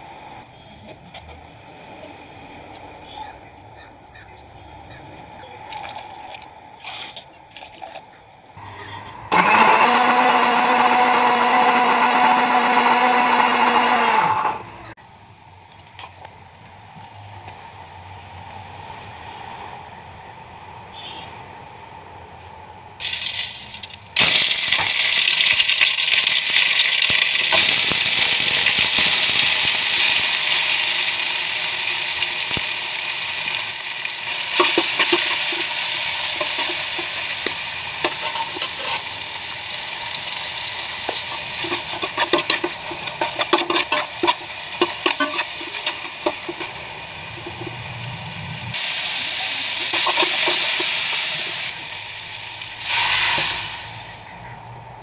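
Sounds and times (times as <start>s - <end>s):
food sizzling in hot oil: 23.0s - 48.1s, 48.7s - 54.0s
spoon scraping and tapping pan: 34.6s - 35.7s, 36.4s - 39.0s, 41.0s - 46.8s.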